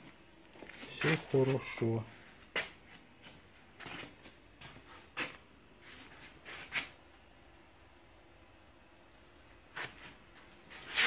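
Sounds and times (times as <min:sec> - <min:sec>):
soft scuffs and clicks: 0:00.0 - 0:07.0, 0:09.6 - 0:11.0.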